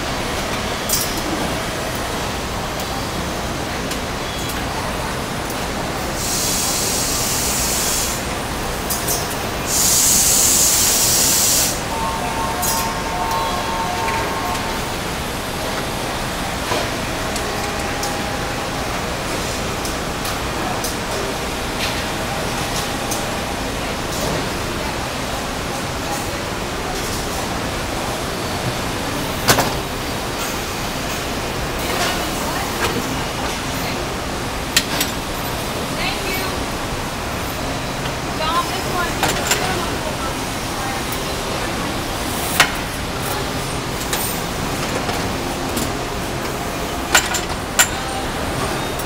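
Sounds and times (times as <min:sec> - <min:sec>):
factory machinery noise: 0:00.0 - 0:49.0
compressed air hiss: 0:06.2 - 0:08.3, 0:09.7 - 0:11.9.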